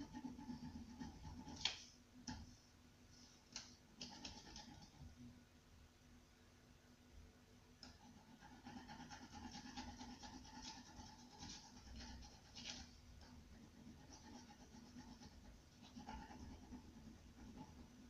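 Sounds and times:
scratching of colouring on paper: 0:00.0 - 0:01.9, 0:04.0 - 0:05.1, 0:07.8 - 0:18.0.

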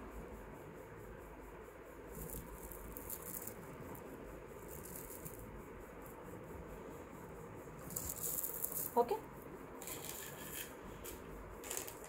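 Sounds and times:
beaded chains clinking: 0:02.1 - 0:03.6, 0:04.6 - 0:05.4, 0:07.8 - 0:09.0, 0:09.8 - 0:12.0.

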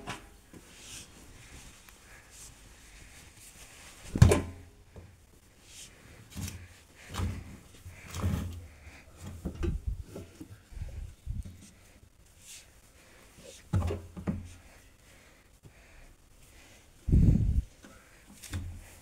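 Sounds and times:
fabric rustling: 0:00.6 - 0:04.2
laundry thudding into washing machine: 0:04.1 - 0:04.6.

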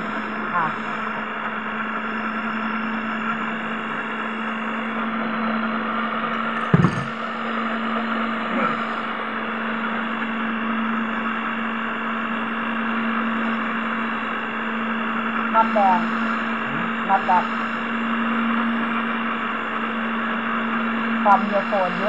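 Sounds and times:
electric stand mixer motor hum: 0:01.4 - 0:08.4.

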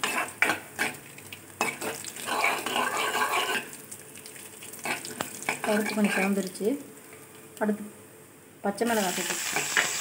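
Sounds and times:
seeds sizzling in hot oil: 0:00.0 - 0:06.8, 0:08.8 - 0:10.0.

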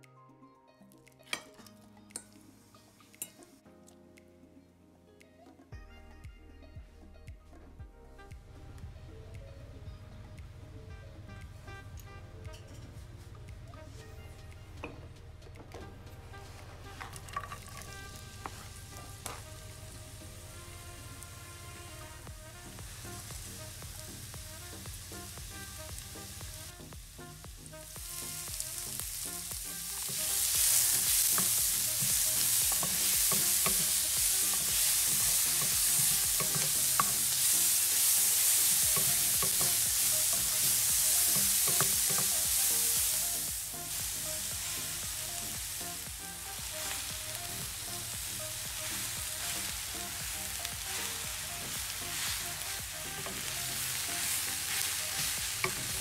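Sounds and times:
vegetables sizzling in oil: 0:01.3 - 0:03.6, 0:16.4 - 0:56.0
spatula clicking on pan: 0:30.0 - 0:42.6.

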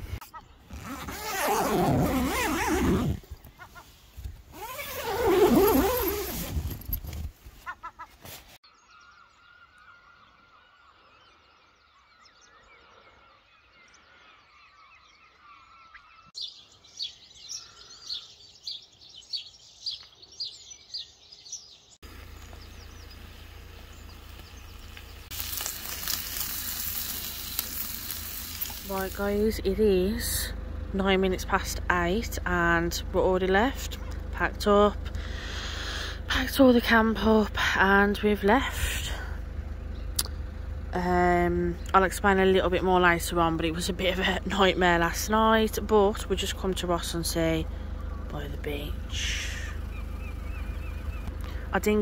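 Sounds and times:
birds chirping: 0:00.0 - 0:07.0, 0:07.6 - 0:52.0
tent zip pulled open: 0:00.7 - 0:03.4, 0:04.4 - 0:07.6
bacon sizzling in frying pan: 0:25.3 - 0:28.9.

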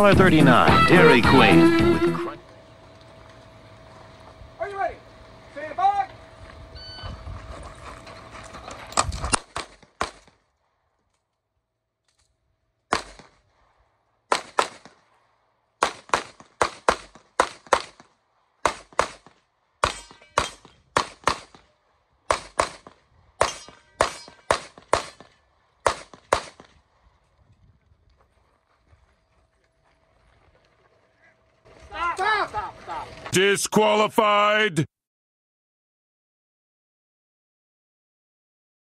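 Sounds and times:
pistol shots: 0:09.3 - 0:10.4, 0:12.9 - 0:13.4, 0:14.3 - 0:15.0, 0:15.8 - 0:21.7, 0:22.3 - 0:26.7.

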